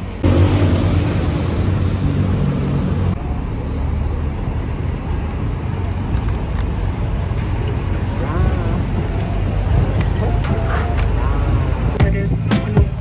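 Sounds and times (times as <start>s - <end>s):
bus engine: 0.0s - 13.0s
road and traffic noise: 0.0s - 13.0s.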